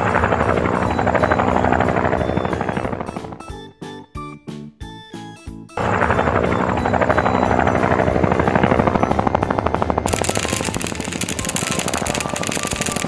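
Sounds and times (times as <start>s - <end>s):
helicopter rotor chopping whir: 0.0s - 3.6s, 5.8s - 13.0s.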